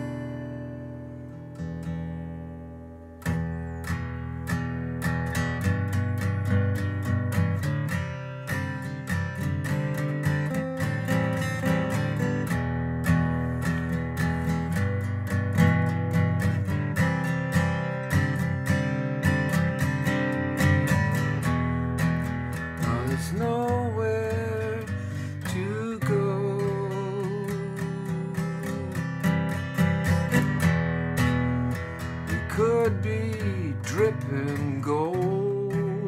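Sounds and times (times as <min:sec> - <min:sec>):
acoustic guitar strumming: 0:00.0 - 0:36.0
man singing: 0:22.8 - 0:30.4, 0:32.2 - 0:36.0.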